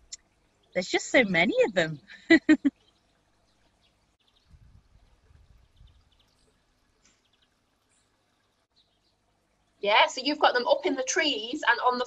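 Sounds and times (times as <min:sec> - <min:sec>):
small birds chirping: 0:00.0 - 0:12.0
soft low rumble: 0:04.4 - 0:06.6.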